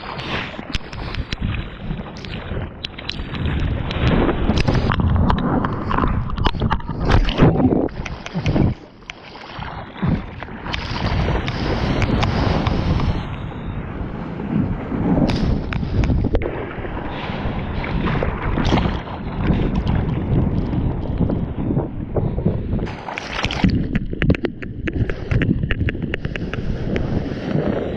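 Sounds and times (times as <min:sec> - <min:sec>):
whitewater rushing and splashing: 0:22.8 - 0:27.9.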